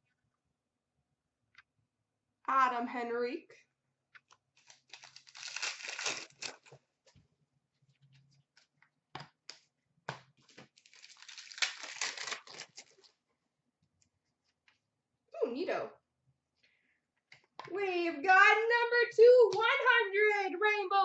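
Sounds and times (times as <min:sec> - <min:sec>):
wrapper tearing and crinkling: 0:04.6 - 0:06.8, 0:10.5 - 0:13.1.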